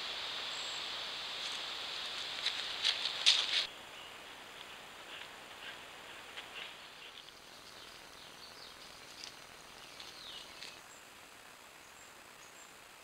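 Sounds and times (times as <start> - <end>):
steady hiss: 0.0 - 13.0
paws crackling dry leaves: 1.4 - 3.7, 4.5 - 10.9
small birds chirping: 3.0 - 13.0.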